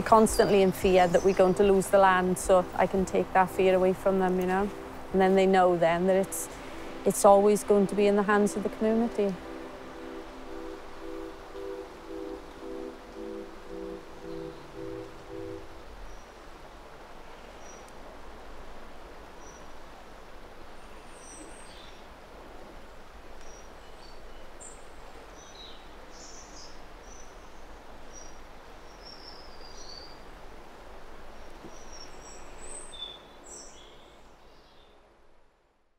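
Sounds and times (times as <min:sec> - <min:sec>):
birds chirping: 0:00.0 - 0:16.4
steady background hiss: 0:00.0 - 0:35.9.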